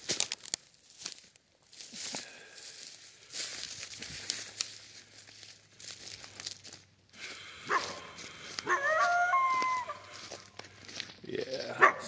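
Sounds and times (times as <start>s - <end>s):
footsteps crunching dry leaves: 0.0s - 12.0s
coyote howling: 7.6s - 10.5s
coyote yelp: 7.6s - 10.5s.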